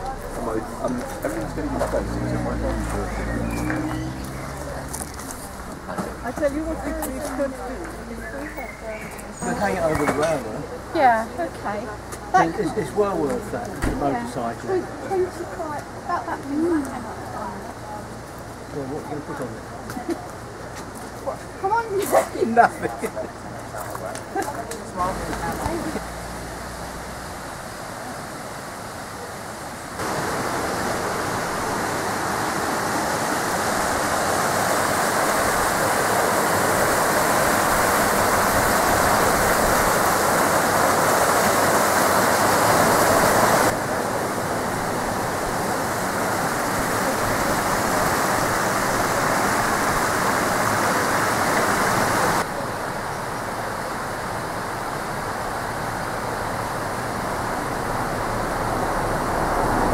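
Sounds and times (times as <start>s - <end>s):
river water rushing over rocks: 0.0s - 8.4s, 23.3s - 59.9s.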